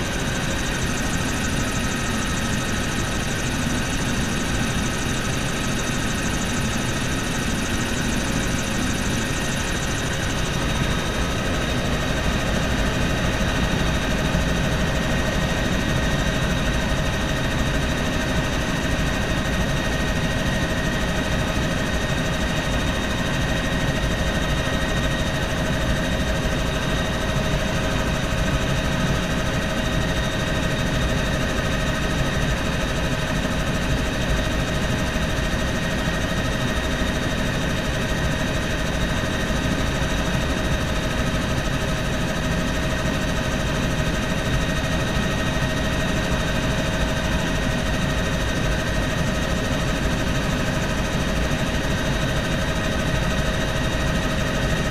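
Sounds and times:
helicopter rotor and engine: 0.0 - 54.9.

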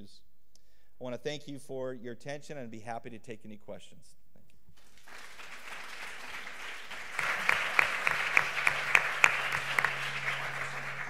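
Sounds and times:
audience applause: 4.8 - 11.0
sharp close claps: 4.8 - 11.0.

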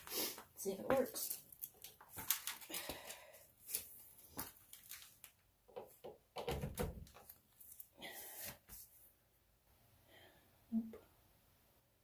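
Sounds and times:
knocks and clunks of fittings: 5.7 - 7.2.

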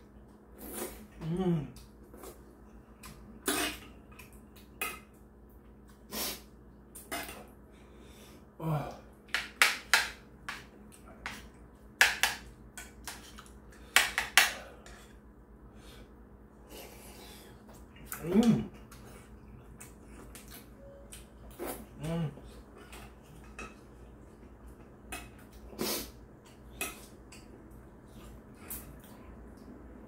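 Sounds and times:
person humming: 1.2 - 1.9, 18.1 - 18.7, 21.9 - 22.5.

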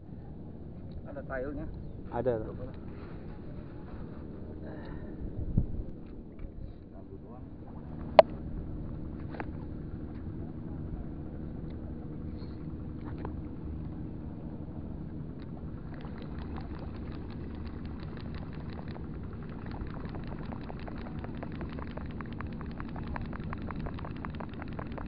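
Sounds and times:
low engine hum: 3.1 - 25.0
fishing reel ticking: 16.0 - 25.0.

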